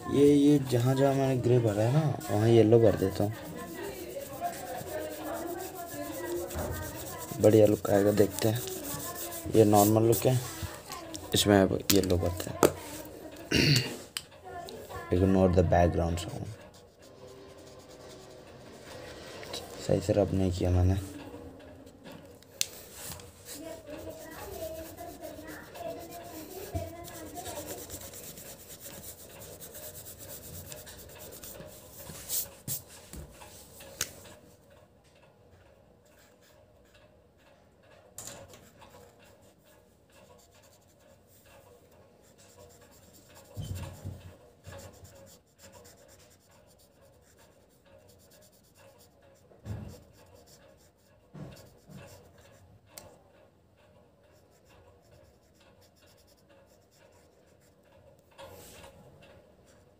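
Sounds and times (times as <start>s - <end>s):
marker pen scratching on paper: 0.1s - 13.2s, 16.2s - 19.7s, 22.5s - 34.4s, 38.2s - 41.6s, 42.2s - 52.6s, 54.3s - 57.9s.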